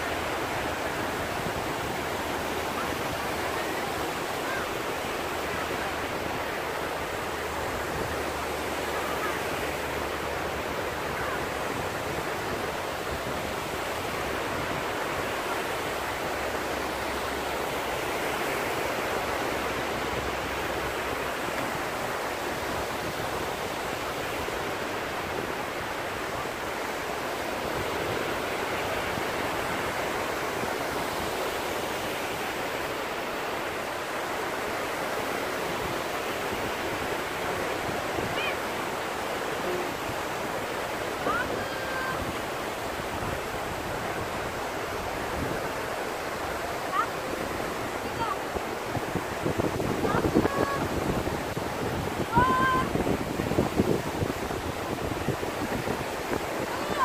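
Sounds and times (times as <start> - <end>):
small waves breaking: 0.0 - 57.0.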